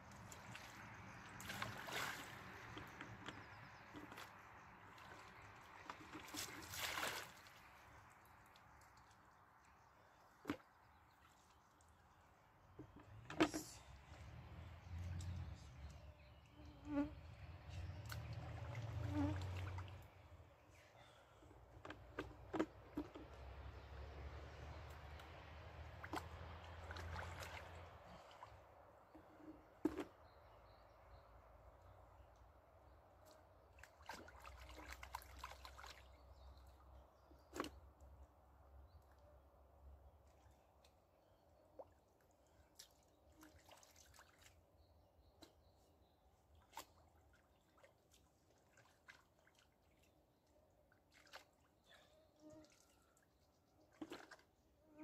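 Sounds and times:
small water splashes: 0.0 - 12.8, 17.3 - 20.6, 22.1 - 29.2, 33.1 - 38.2, 40.0 - 54.8.

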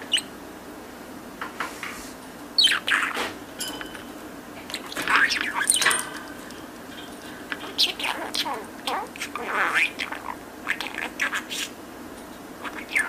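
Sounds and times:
budgerigar chattering: 0.0 - 0.3, 7.6 - 11.8.

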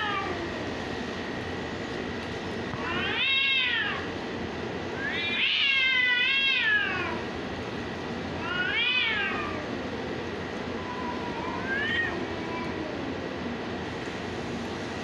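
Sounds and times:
cats yowling: 0.0 - 0.7, 2.8 - 4.2, 4.9 - 7.3, 8.4 - 9.9, 10.6 - 13.4
cat low moan: 10.7 - 13.5.

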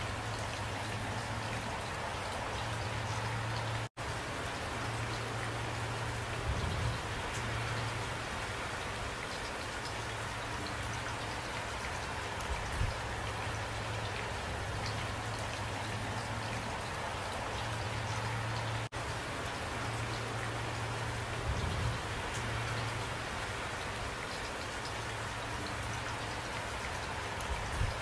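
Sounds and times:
steady rain falling: 0.0 - 28.0.

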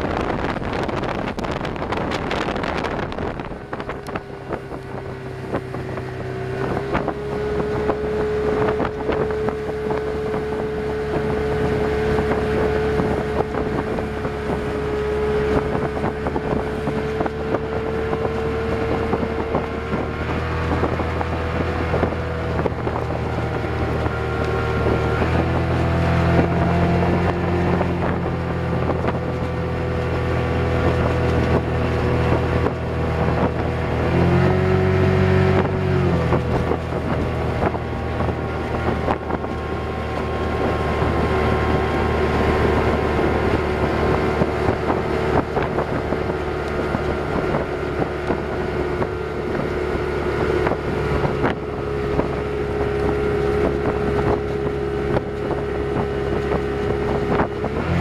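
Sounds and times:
boat wake hissing: 0.0 - 58.0
outboard motor running: 0.0 - 58.0
wind buffeting microphone: 0.0 - 58.0.

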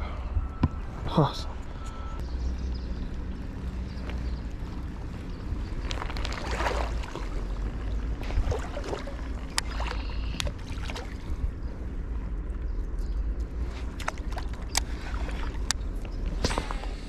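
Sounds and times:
wind rumble on microphone: 0.0 - 17.0
creek water sloshing: 4.1 - 11.8, 13.5 - 16.9.

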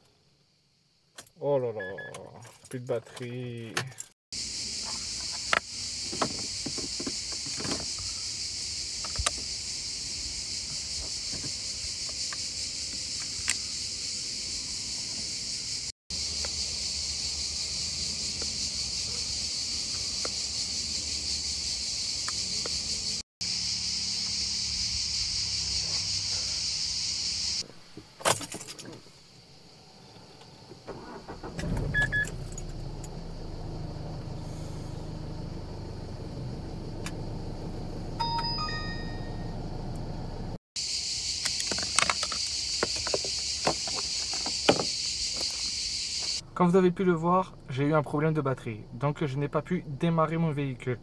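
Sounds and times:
cicada drone: 4.4 - 27.8, 29.0 - 51.0
handling clicks and knocks: 41.5 - 45.6.

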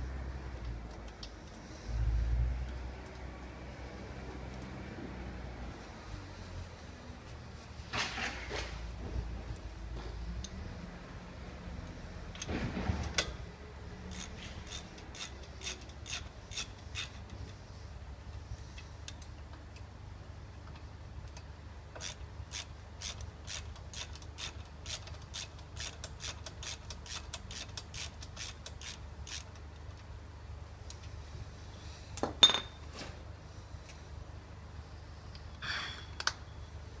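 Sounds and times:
ratchet wrench clicking: 14.0 - 17.4, 22.0 - 29.6.

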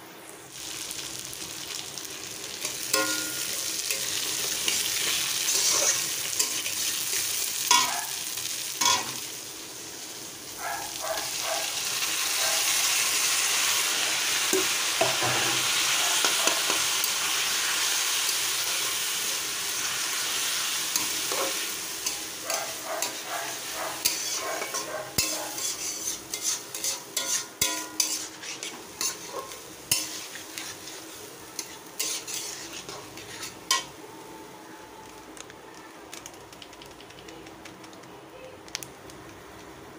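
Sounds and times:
food sizzling in oil: 0.0 - 35.4
metal spatula clinks and scrapes: 24.0 - 29.3.

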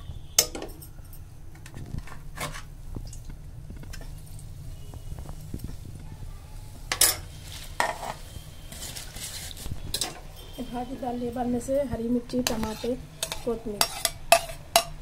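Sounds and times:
plate scraping leaves into pot: 6.9 - 10.6, 12.4 - 14.9.

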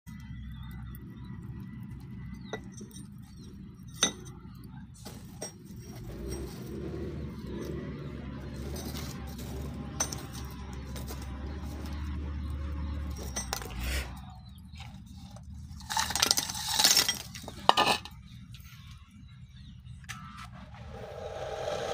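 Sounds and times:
charcoal lumps clinking: 2.5 - 18.6
steady low hum: 18.0 - 21.9.

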